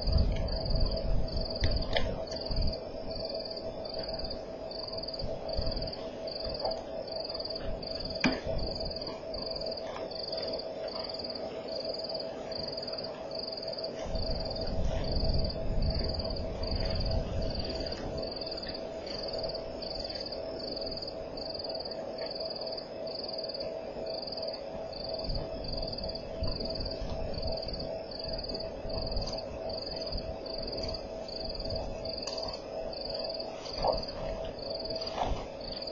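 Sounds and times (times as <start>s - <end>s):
low rumble: 14.0s - 21.1s.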